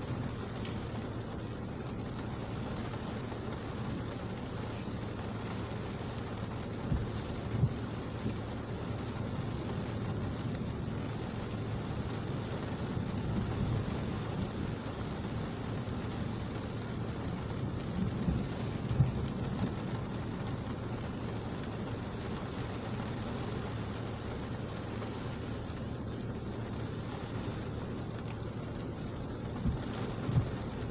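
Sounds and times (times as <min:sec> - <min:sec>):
heavy rain on a car: 0:00.0 - 0:30.9
low engine hum: 0:00.0 - 0:30.9
dull thumps: 0:29.6 - 0:30.7.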